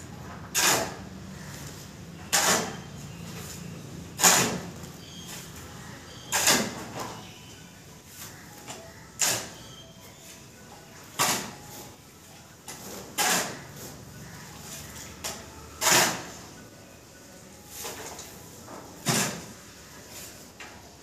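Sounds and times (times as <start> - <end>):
shovel scraping mortar on concrete: 0.5 - 1.0, 2.3 - 2.9, 4.2 - 4.7, 6.2 - 6.9, 9.2 - 9.8, 11.2 - 11.6, 12.8 - 14.0, 15.8 - 16.4, 19.0 - 19.6.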